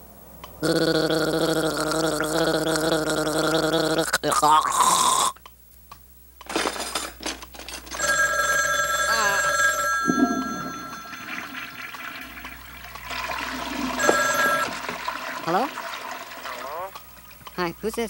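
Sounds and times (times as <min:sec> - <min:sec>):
two-tone telephone bell ringing: 0:07.9 - 0:12.5, 0:13.1 - 0:15.3.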